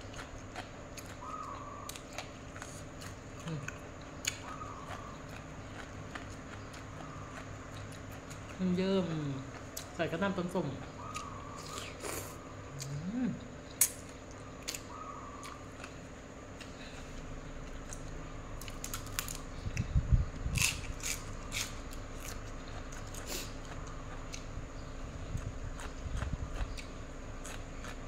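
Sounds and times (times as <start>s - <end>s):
chewing and crunching: 0.0s - 28.0s
faint steady hum: 0.0s - 28.0s.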